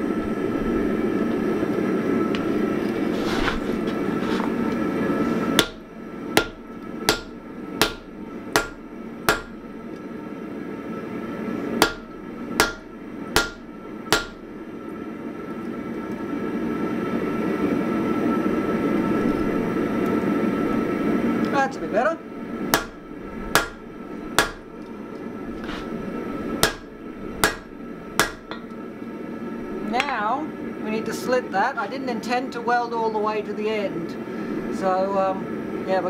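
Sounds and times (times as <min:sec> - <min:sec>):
hammer striking hot metal on anvil: 0:05.6 - 0:09.6, 0:11.8 - 0:14.5, 0:22.7 - 0:23.8, 0:24.4 - 0:24.7, 0:26.6 - 0:28.8.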